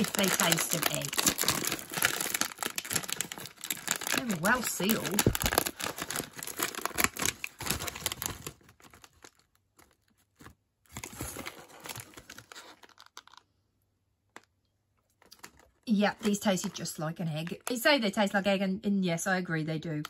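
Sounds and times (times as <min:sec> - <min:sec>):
crisp packet tearing open: 0:00.0 - 0:13.4
crisp packet crinkling: 0:00.0 - 0:13.5, 0:14.3 - 0:17.7.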